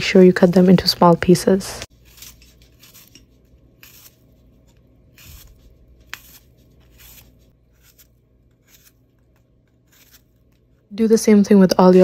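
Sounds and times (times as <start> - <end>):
knife slicing apple: 1.9 - 10.8.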